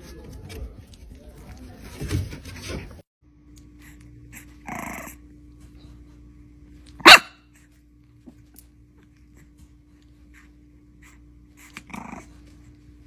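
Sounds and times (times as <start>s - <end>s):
puppy growling: 4.3s - 5.3s, 11.0s - 12.8s
puppy barking: 7.0s - 7.5s.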